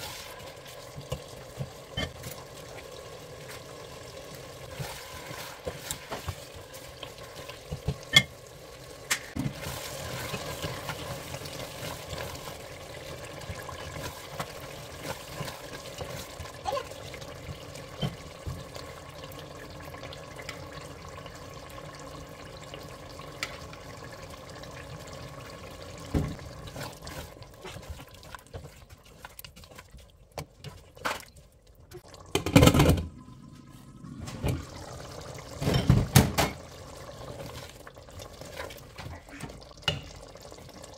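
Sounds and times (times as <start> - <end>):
stew simmering in a pot: 0.0 - 40.9
spatula stirring and knocking pot: 4.7 - 8.3, 9.4 - 16.6, 26.1 - 31.3.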